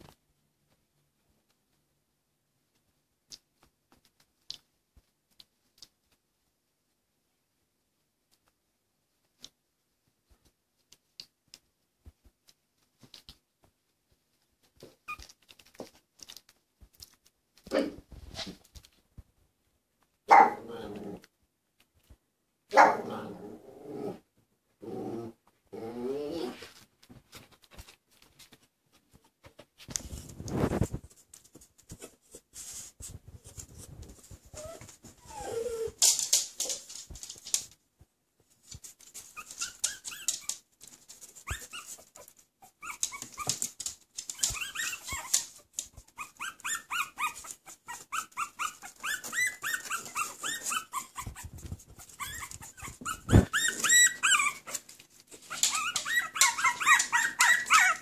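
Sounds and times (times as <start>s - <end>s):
puppies squeaking and whimpering: 34.6s - 36.0s, 39.3s - 40.6s, 41.4s - 58.0s.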